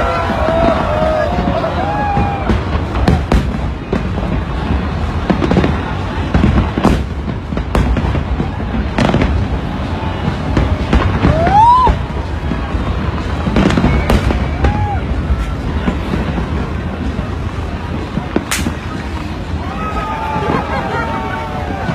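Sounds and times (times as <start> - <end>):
firework whistle: 0.0 - 16.6
crowd noise: 0.0 - 21.9
fireworks bangs: 0.0 - 21.9.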